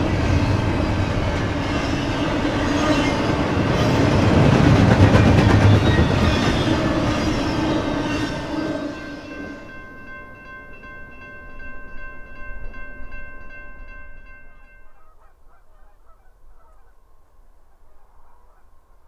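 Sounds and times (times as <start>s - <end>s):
train wheels clattering: 0.0s - 9.3s.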